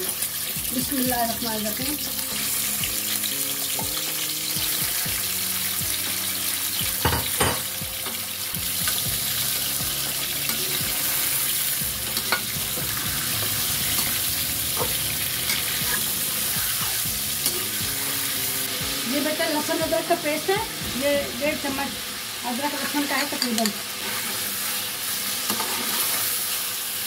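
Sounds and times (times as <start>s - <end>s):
chicken sizzling in hot oil: 0.0s - 27.0s
metal spoon knocking on pan: 7.0s - 7.8s.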